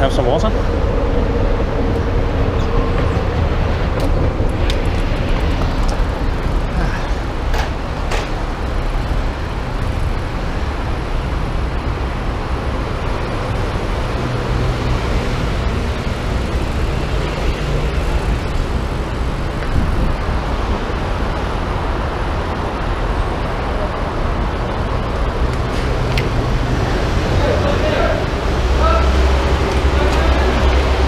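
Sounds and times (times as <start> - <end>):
heavy road traffic: 0.0 - 31.0.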